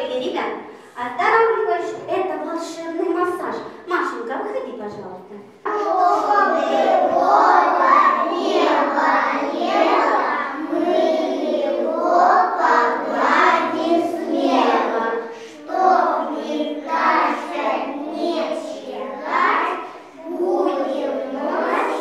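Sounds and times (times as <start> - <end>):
children singing in chorus: 5.7 - 22.0.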